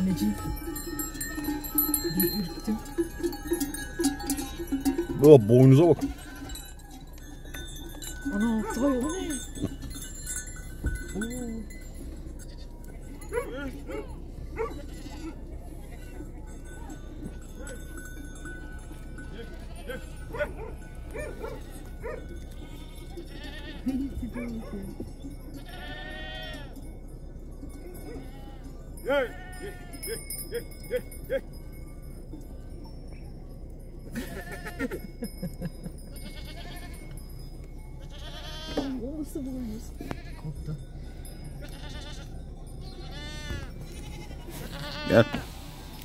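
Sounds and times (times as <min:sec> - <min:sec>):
goats bleating: 0:00.0 - 0:06.6, 0:14.7 - 0:15.4, 0:19.3 - 0:20.4, 0:21.4 - 0:24.4, 0:25.6 - 0:26.7, 0:28.1 - 0:30.2, 0:34.2 - 0:35.0, 0:36.1 - 0:37.2, 0:38.0 - 0:39.0, 0:40.0 - 0:45.8
steady low rumble: 0:00.0 - 0:46.0.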